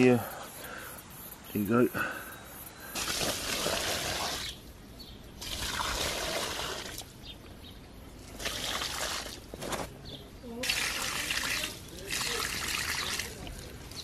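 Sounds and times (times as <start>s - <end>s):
watering can pouring water: 5.4s - 7.1s, 8.2s - 9.5s, 10.6s - 14.0s.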